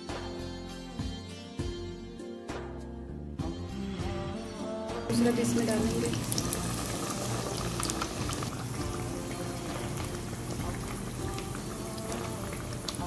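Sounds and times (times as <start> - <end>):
soft background music: 0.0 - 13.0
food sizzling in hot oil: 5.1 - 13.0.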